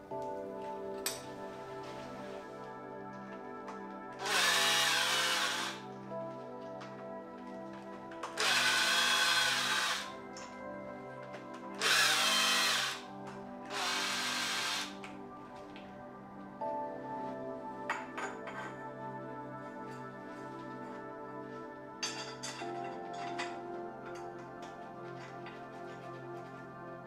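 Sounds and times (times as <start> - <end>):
power tool motor spinning up: 4.2 - 5.8, 8.4 - 10.1, 11.8 - 13.0, 13.7 - 15.0.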